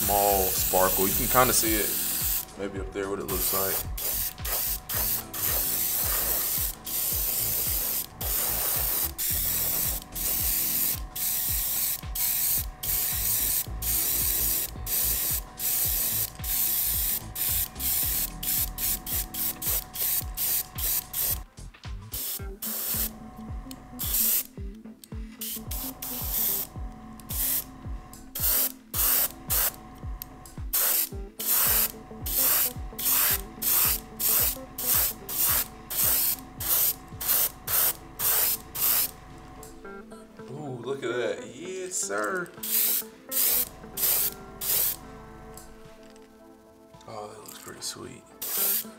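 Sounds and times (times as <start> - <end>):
airbrush spraying hiss: 0.0 - 2.6, 3.3 - 21.5, 22.1 - 23.2, 24.0 - 24.5, 25.4 - 26.7, 27.3 - 27.7, 28.3 - 29.8, 30.7 - 39.2, 42.6 - 45.1, 48.4 - 48.9.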